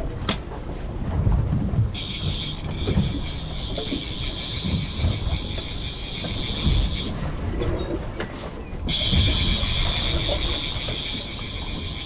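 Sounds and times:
boat engines rumbling: 0.6 - 12.0
high-pitched whine: 2.0 - 7.3, 8.9 - 12.0.

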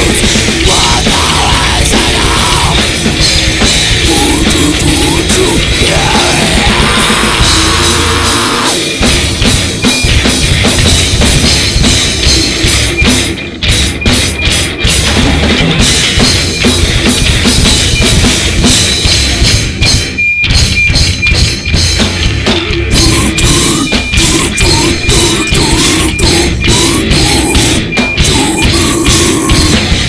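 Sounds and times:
distorted guitars and bass: 0.0 - 30.0
pounding drum kit: 0.0 - 30.0
vocalist shouting into microphone: 0.6 - 2.8, 4.1 - 8.8.

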